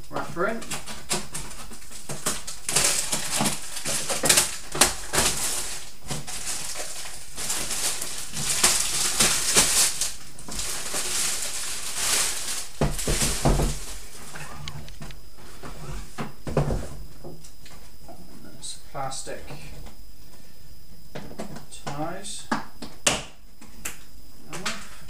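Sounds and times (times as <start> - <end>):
plastic wrapper crinkling: 0.7 - 15.2
box knocks: 12.8 - 13.8.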